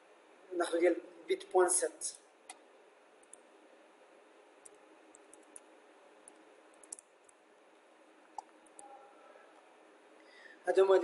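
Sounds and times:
low steady hiss: 0.0 - 11.0
keyboard and mouse clicks: 4.6 - 7.4.

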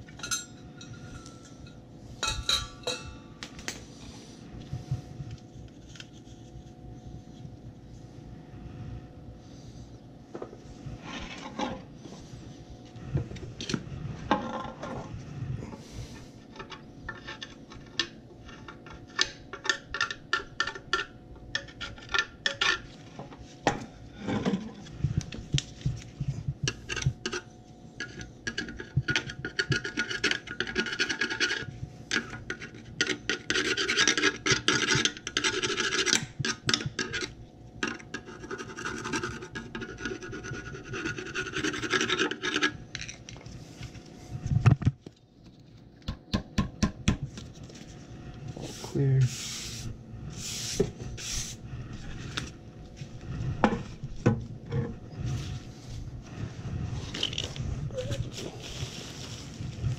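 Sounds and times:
screwdriver scraping metal plate: 26.7 - 42.8.

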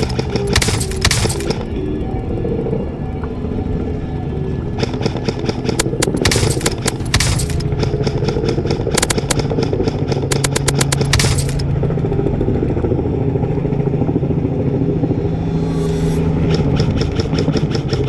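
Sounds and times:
droning music: 0.0 - 18.0
rapid airsoft rifle fire: 4.8 - 11.6.

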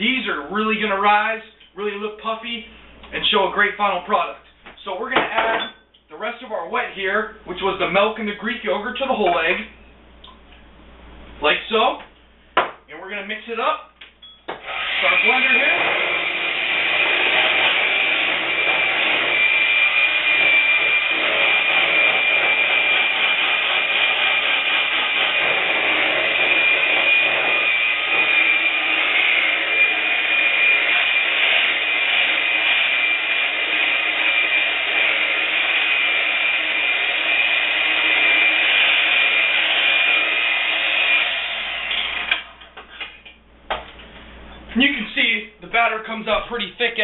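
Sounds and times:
electric blender whining: 14.6 - 42.6.

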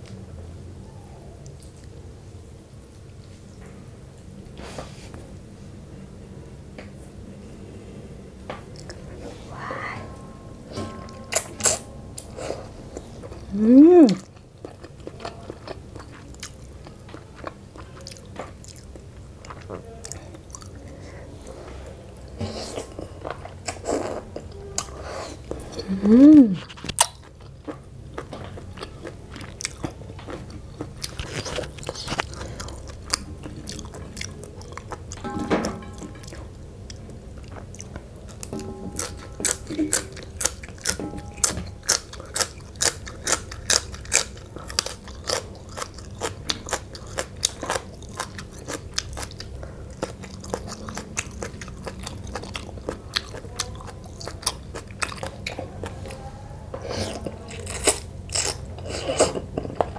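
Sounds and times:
chewing and crunching: 11.3 - 21.5, 26.6 - 35.3, 35.9 - 59.9.

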